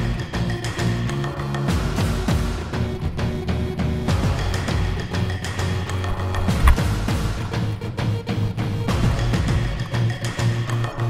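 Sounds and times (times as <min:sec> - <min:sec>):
music with heavy drums: 0:00.0 - 0:10.8
loud thump: 0:06.4 - 0:07.1.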